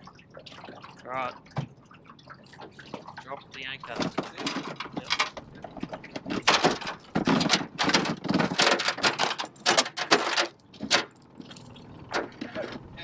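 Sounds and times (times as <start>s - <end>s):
anchor chain rattling on metal hull: 3.8s - 13.0s.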